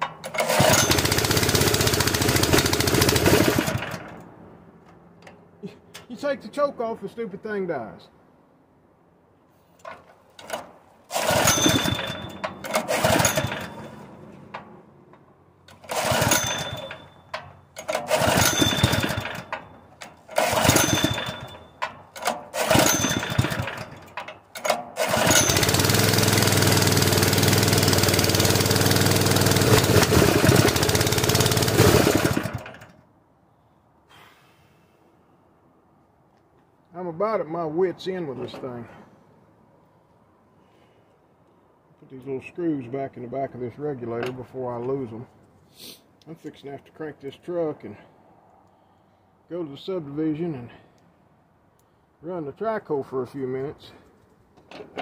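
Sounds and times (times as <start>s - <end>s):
engine starting and stalling: 0.0s - 4.3s, 10.3s - 14.7s, 15.6s - 33.0s.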